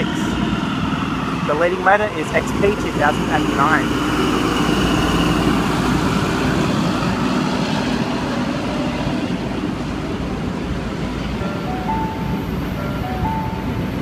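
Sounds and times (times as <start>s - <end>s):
diesel locomotive engine droning: 0.0s - 14.0s
train carriages rolling past: 0.0s - 14.0s.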